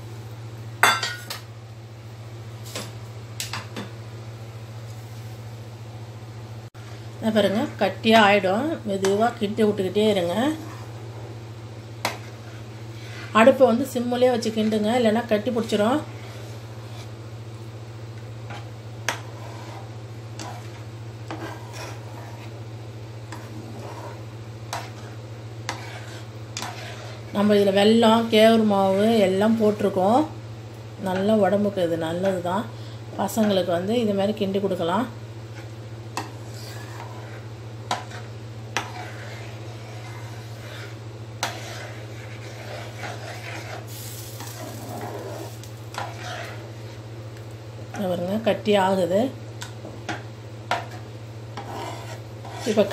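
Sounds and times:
steady low hum: 0.0s - 52.9s
metal spoon scraping a pan: 12.0s - 14.7s, 18.5s - 22.6s, 23.3s - 29.2s, 35.5s - 47.0s, 50.1s - 52.9s.

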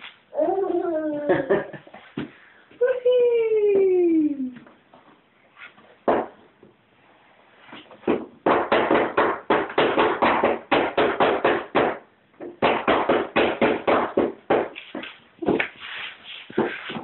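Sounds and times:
rapid knocking on hollow plastic: 8.0s - 14.7s.

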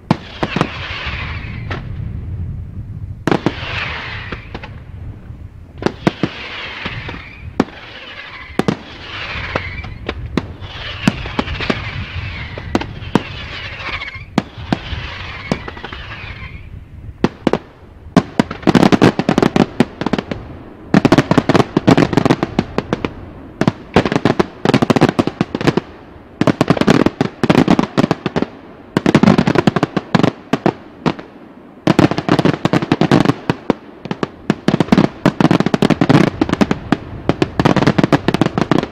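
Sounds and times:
firework shells bursting with hiss: 0.0s - 2.1s, 3.2s - 5.0s, 5.6s - 38.9s
rapid firework cracks: 0.1s - 1.9s, 3.3s - 4.8s, 5.8s - 16.6s.

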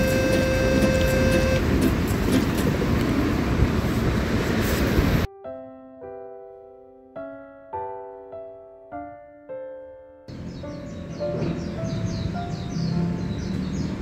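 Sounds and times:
loud rushing outdoor noise: 0.0s - 5.3s
soft piano notes: 5.3s - 14.0s.

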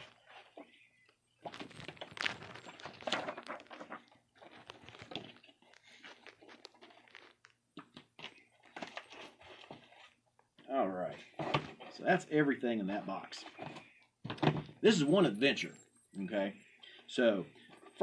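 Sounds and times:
paper and cardboard rustling: 1.4s - 10.2s.

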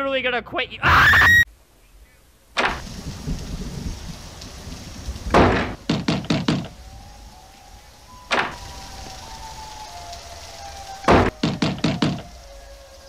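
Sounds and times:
door slamming shut: 2.6s - 2.8s, 5.3s - 6.7s, 8.3s - 8.6s, 11.1s - 12.2s
knocks on door: 5.4s - 6.7s, 11.1s - 12.2s.

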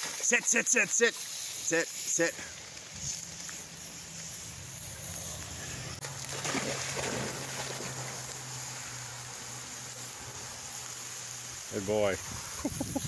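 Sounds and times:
dog splashing in water: 6.0s - 10.0s.

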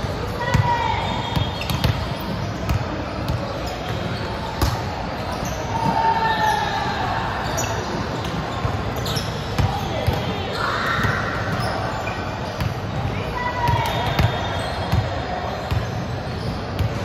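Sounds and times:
balls bouncing on gym floor: 0.0s - 5.0s
players' voices: 0.0s - 17.0s.

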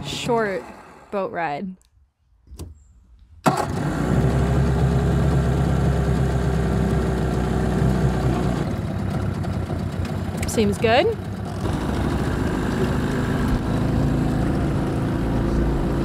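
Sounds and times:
outboard motor starting and idling: 3.4s - 16.0s.

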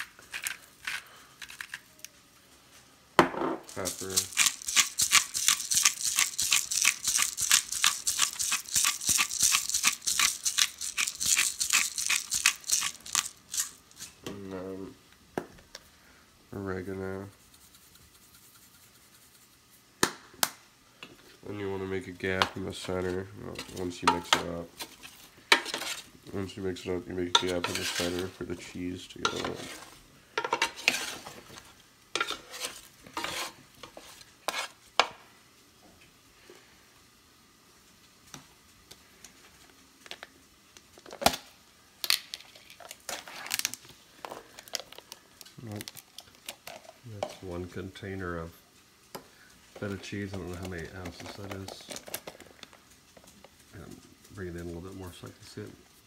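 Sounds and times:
pepper mill grinding peppercorns: 0.0s - 2.1s, 3.7s - 14.3s, 27.2s - 29.9s, 42.0s - 47.8s, 49.8s - 55.6s
wooden spoon scraping a pan: 22.4s - 26.2s, 27.3s - 34.9s, 49.7s - 52.6s.

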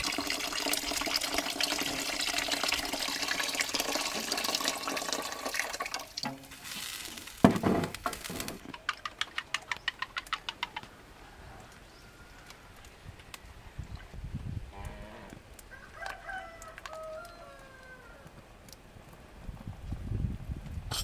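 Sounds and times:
water pouring into pot: 0.0s - 7.4s.

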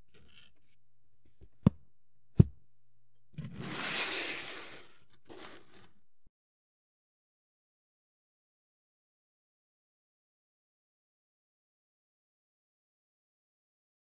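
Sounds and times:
sharp knocks on work surface: 2.4s - 2.6s
rustling and scraping: 3.4s - 6.0s.

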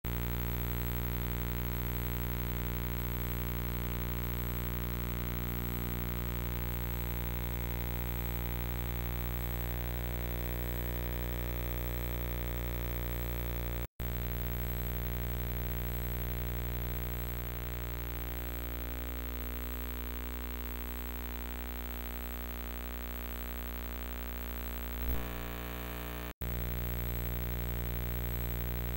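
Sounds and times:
low electrical buzz-hum: 0.1s - 28.9s
thin high whine: 25.0s - 26.4s.

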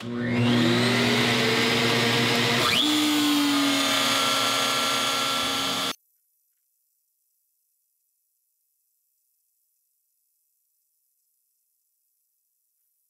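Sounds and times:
router motor whine: 0.0s - 6.0s.

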